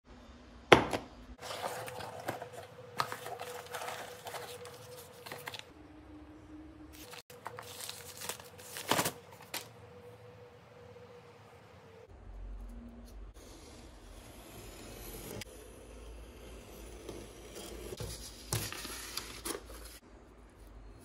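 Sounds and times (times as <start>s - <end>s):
cardboard knock: 0.7s - 1.1s
cardboard and paper rustling: 1.4s - 5.7s, 7.0s - 9.8s, 18.0s - 20.0s.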